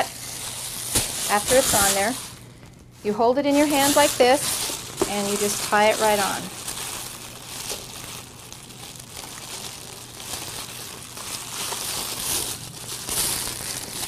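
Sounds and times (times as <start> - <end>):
foil ribbon crinkling: 0.0 - 14.0.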